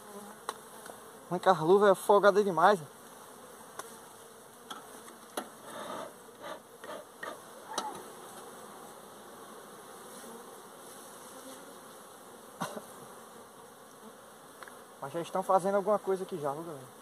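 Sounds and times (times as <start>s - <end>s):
bees buzzing: 0.0s - 17.0s
bee smoker puffs: 2.7s - 17.0s.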